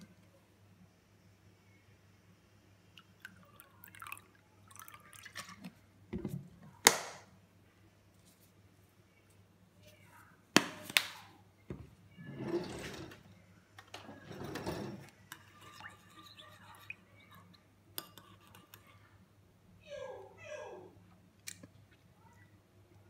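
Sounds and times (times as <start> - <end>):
metal spoon stirring in bowl: 14.2 - 19.1.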